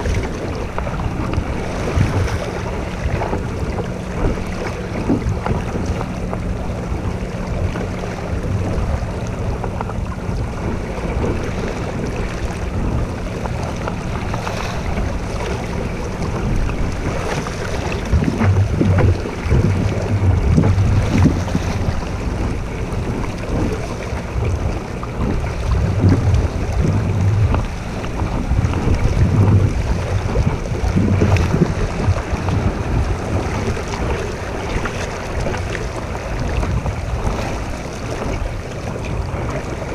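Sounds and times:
water splashing against boat: 0:00.0 - 0:39.9
wind buffeting microphone: 0:00.0 - 0:39.9.

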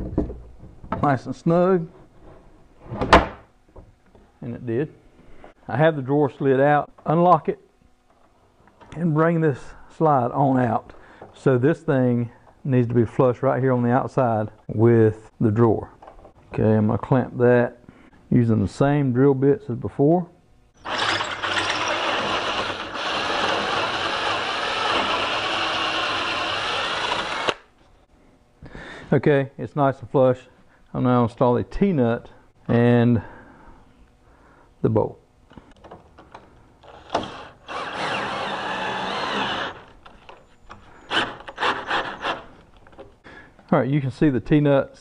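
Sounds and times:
cordless drill boring into wood: 0:20.8 - 0:27.7, 0:36.8 - 0:39.9, 0:41.1 - 0:42.4.

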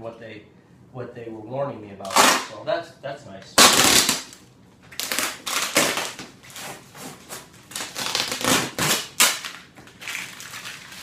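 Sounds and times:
packing tape ripping: 0:02.0 - 0:02.6, 0:03.6 - 0:11.0
cardboard tearing: 0:03.6 - 0:04.4, 0:05.0 - 0:11.0.

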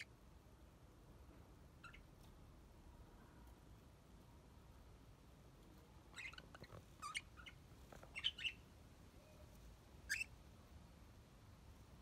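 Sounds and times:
budgerigars chirping: 0:01.8 - 0:02.1, 0:06.2 - 0:08.6, 0:10.0 - 0:10.4.

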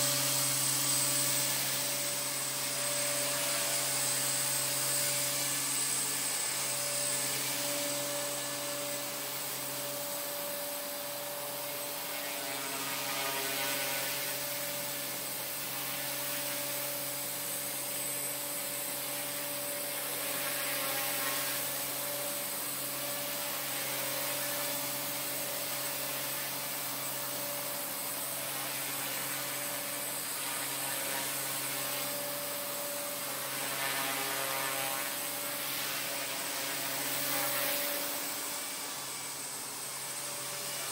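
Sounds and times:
model helicopter motor whine: 0:00.0 - 0:40.9.

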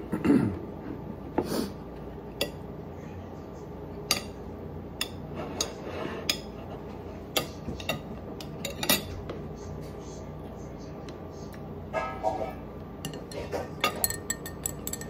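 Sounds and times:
metal spoon clinking on plate: 0:13.0 - 0:15.0.

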